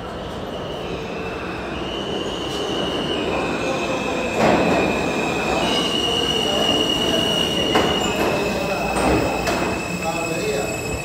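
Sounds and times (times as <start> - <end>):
train wheels squealing: 0.0 - 11.0
train rumble and rattle: 4.0 - 11.0.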